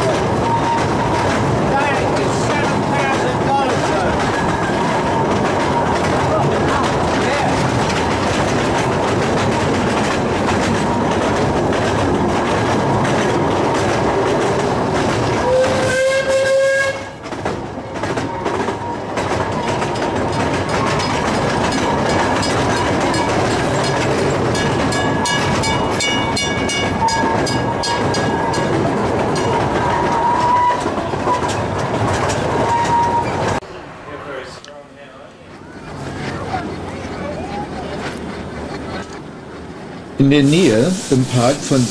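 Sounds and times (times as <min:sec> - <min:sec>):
small train cars clattering on rails: 0:00.0 - 0:41.9
steam train whistle blast: 0:15.4 - 0:17.2.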